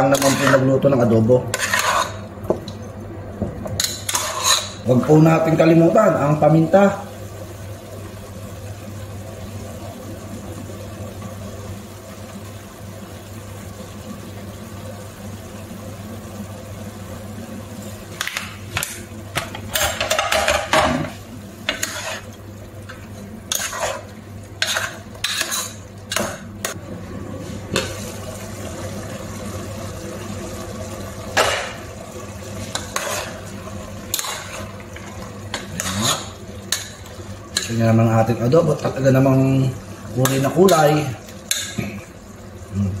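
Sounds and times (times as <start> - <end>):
pot hissing on gas burner: 0.0 - 2.6, 3.7 - 43.0
metal spoon scraping pot: 1.5 - 2.2, 3.8 - 4.8, 21.7 - 22.3, 23.5 - 26.3.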